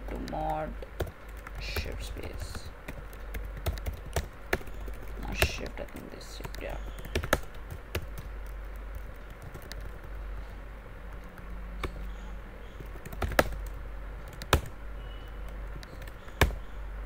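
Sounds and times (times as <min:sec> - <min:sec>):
low steady hum: 0:00.0 - 0:17.0
keyboard key clicks: 0:14.3 - 0:14.7.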